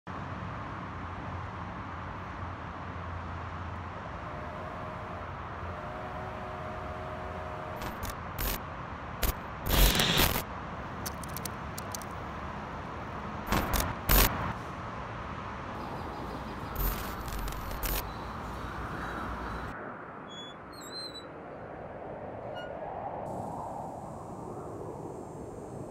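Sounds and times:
road traffic hum: 0:00.1 - 0:25.9
sharp clicks and clatters: 0:07.1 - 0:08.6, 0:09.2 - 0:10.4, 0:11.0 - 0:12.2, 0:13.5 - 0:14.5, 0:16.8 - 0:18.1.

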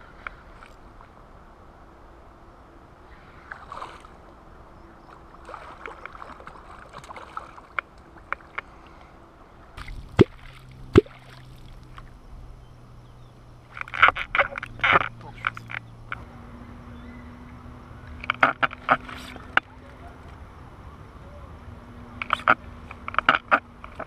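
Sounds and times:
steady low hum: 0:00.0 - 0:24.0
fish splashing in water: 0:05.1 - 0:08.7, 0:09.8 - 0:12.1.

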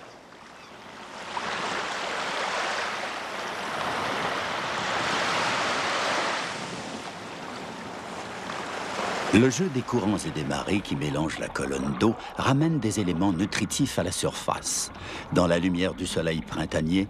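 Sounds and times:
small waves breaking on sand: 0:00.0 - 0:10.9.

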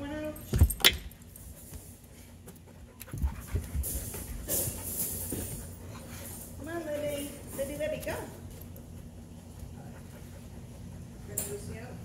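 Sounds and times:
dog panting: 0:01.6 - 0:07.4, 0:08.6 - 0:11.4.

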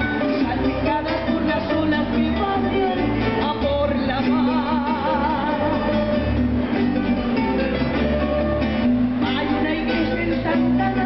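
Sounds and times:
woman singing into a microphone: 0:00.0 - 0:06.4, 0:09.2 - 0:11.0
latin-style backing track with guitar: 0:00.0 - 0:11.0.

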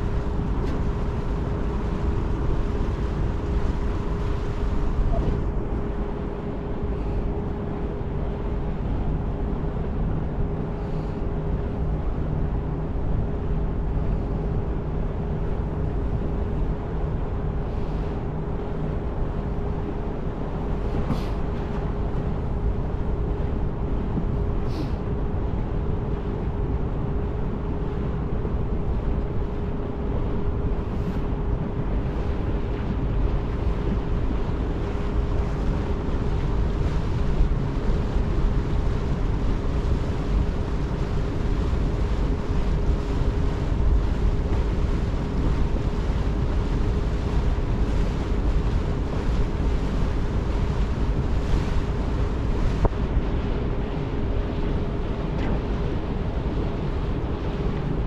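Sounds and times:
ferry engine humming: 0:00.0 - 0:58.0.

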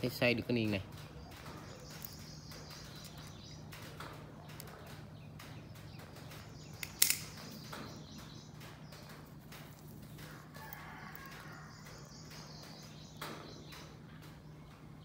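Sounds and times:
birds chirping: 0:00.0 - 0:15.0
sharp click: 0:06.8 - 0:07.8.

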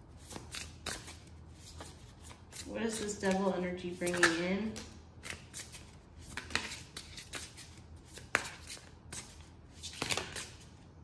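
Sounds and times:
cards being shuffled: 0:04.0 - 0:10.7.

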